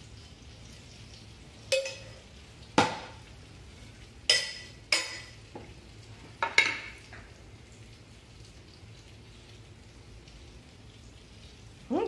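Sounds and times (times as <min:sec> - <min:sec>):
metal spoon clinking on pan: 0:01.7 - 0:02.2, 0:04.3 - 0:05.4.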